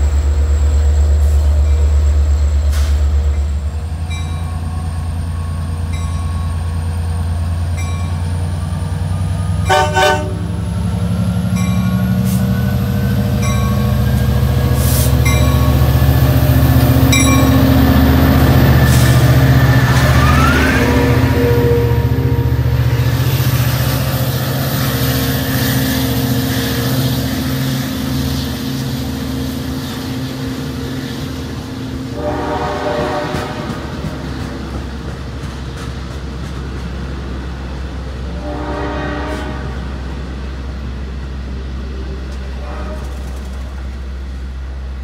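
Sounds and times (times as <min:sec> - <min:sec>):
diesel locomotive engine: 0:00.0 - 0:45.0
train coaches rolling on rails: 0:00.0 - 0:45.0.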